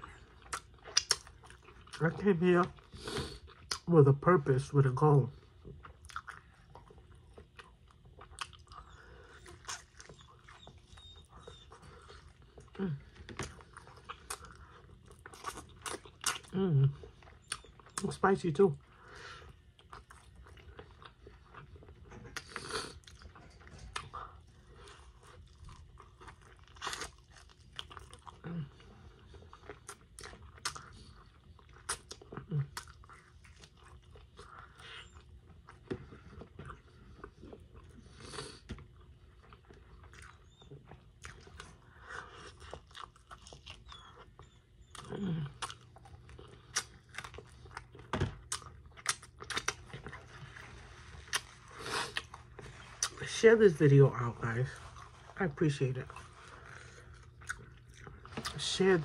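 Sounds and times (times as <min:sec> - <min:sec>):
wet mouth clicks and smacks: 0:00.5 - 0:01.3
chewing and biting chicken wings: 0:05.7 - 0:18.2, 0:19.3 - 0:53.2, 0:56.1 - 0:58.8.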